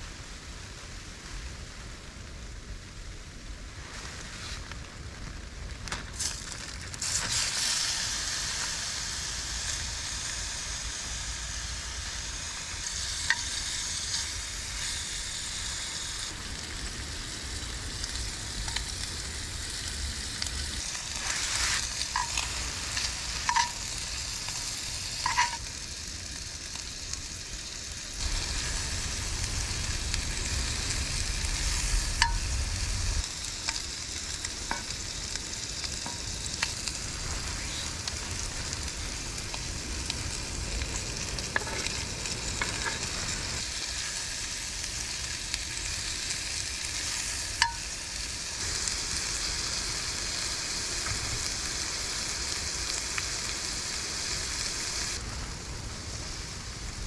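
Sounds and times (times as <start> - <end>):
food sizzling in a skillet: 6.0 - 57.0
metal spatula scraping pan: 25.2 - 25.6.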